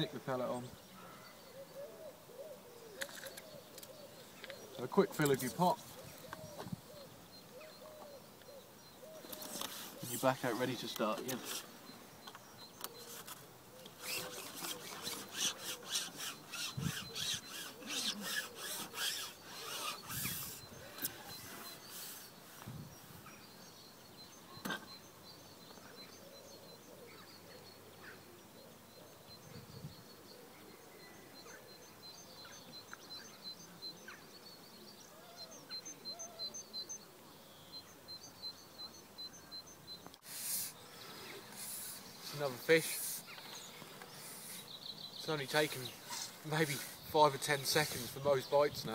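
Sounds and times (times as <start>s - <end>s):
fishing pole sections rasping: 11.3s - 11.7s, 13.0s - 21.4s.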